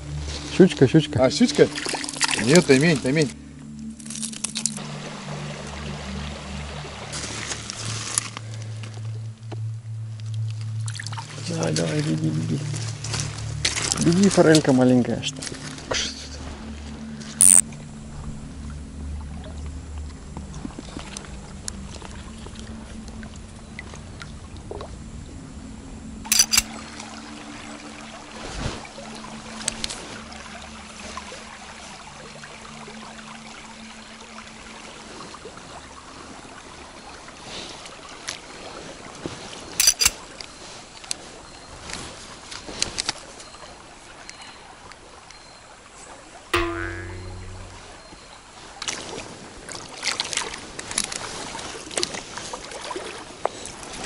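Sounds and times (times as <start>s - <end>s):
low hum: 0.0s - 11.5s, 12.2s - 28.0s, 46.6s - 48.2s
sharp clicks: 26.3s - 26.7s, 39.8s - 40.2s.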